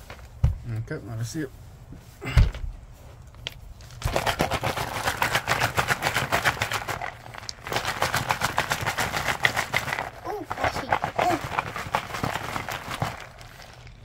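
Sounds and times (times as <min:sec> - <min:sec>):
rocks rattling in tumbler barrel: 0:03.9 - 0:14.0.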